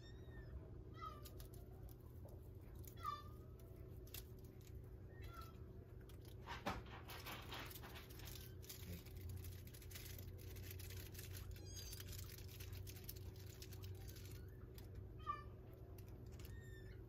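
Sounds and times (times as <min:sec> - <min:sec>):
faint high squeak: 0:00.0 - 0:01.6, 0:13.9 - 0:17.0
low steady hum: 0:00.0 - 0:17.0
kittens rustling in bedding: 0:01.2 - 0:15.1.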